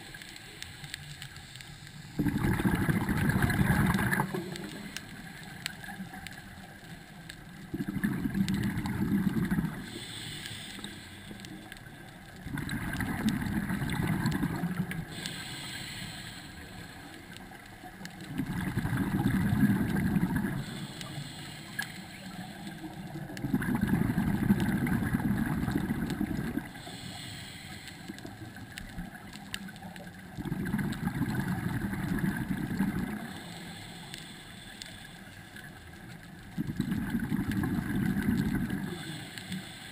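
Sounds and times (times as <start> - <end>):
regulator inhale hiss: 0.0 - 7.4, 9.3 - 12.2, 13.8 - 18.1, 19.4 - 23.4, 24.9 - 29.2, 33.0 - 36.3, 38.1 - 39.9
exhaled bubbles rumbling: 2.1 - 5.1, 7.5 - 10.0, 12.4 - 15.3, 17.9 - 20.8, 22.4 - 26.8, 28.8 - 33.3, 36.4 - 39.1.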